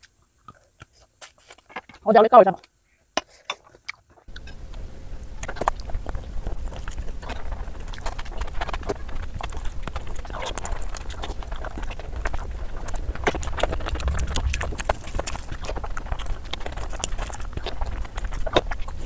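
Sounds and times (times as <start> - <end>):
wet smacking and chewing: 5.4 - 19.0
low rumble: 13.3 - 17.1.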